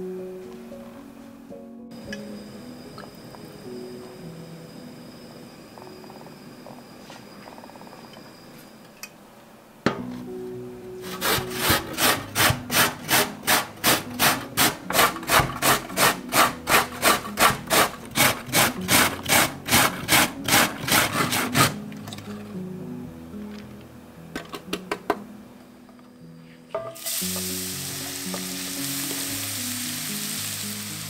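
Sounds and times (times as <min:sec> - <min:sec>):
carrot grating on metal grater: 0:11.0 - 0:21.8.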